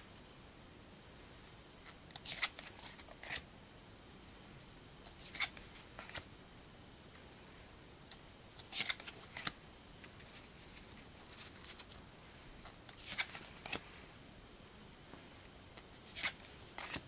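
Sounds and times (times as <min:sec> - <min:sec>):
cards flipped by hand: 0:01.9 - 0:03.4, 0:05.1 - 0:06.3, 0:08.6 - 0:12.0, 0:12.6 - 0:13.8, 0:15.8 - 0:17.0.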